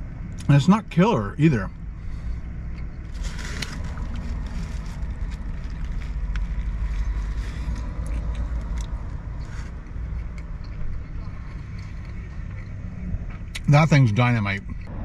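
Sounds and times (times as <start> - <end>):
steady low rumble: 0.0 - 15.0
person chewing food: 2.7 - 13.5
foil wrapper crinkling: 3.1 - 7.8.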